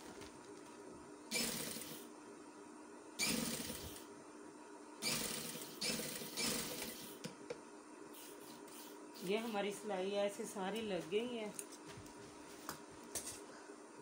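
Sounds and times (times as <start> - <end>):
sewing machine stitching: 1.3 - 2.0, 3.2 - 4.0, 5.0 - 7.2.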